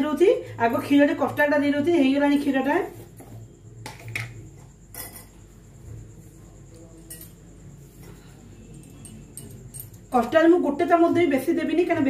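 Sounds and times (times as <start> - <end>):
metal spoon clinking on bowl: 4.9 - 5.4, 7.0 - 7.4, 8.7 - 10.2.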